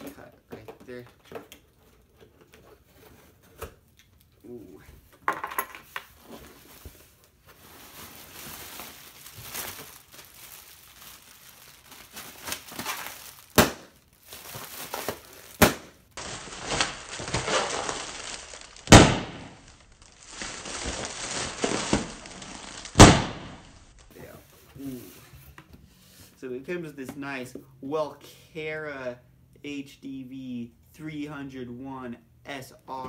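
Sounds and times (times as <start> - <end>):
plastic packing crinkling: 6.4 - 24.1.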